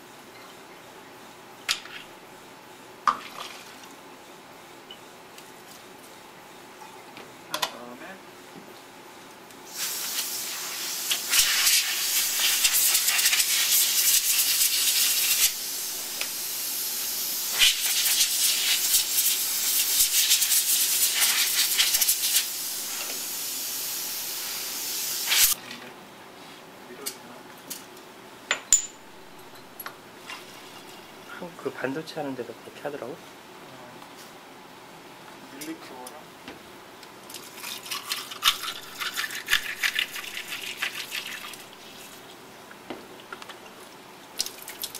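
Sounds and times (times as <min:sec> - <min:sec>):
compressed gas hissing from hose: 0:09.7 - 0:25.6
glassware clicks: 0:28.5 - 0:30.0.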